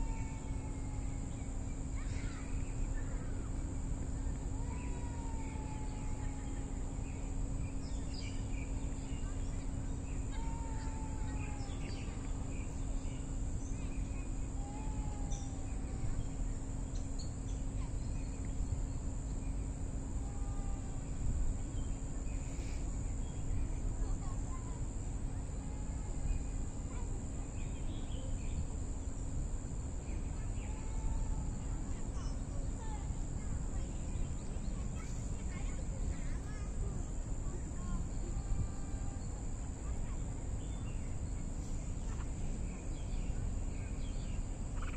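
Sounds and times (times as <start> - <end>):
high insect drone: 0.0 - 44.9
birds chirping: 6.9 - 20.1, 29.9 - 44.9.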